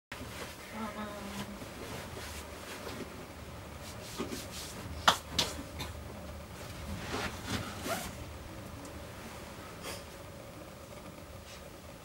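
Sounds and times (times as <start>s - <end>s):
rustling and handling gear: 6.8s - 8.2s.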